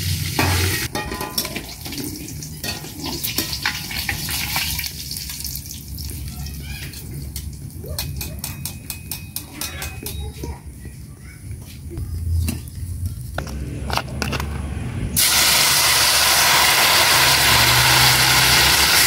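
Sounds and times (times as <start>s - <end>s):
frying sizzle: 0.0s - 8.3s, 15.2s - 19.0s.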